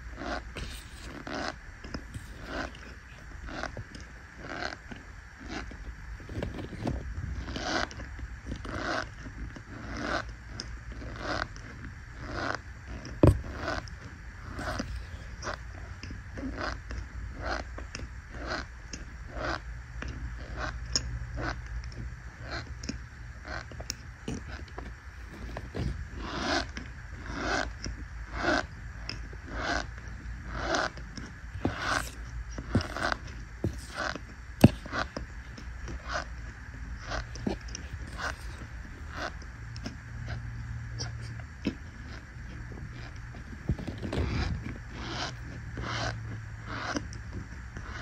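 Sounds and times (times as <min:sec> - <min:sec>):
fingers squeezing powder: 0:00.0 - 0:22.0, 0:23.5 - 0:40.4
powder squeaking when pressed: 0:30.6 - 0:36.3, 0:37.0 - 0:39.4.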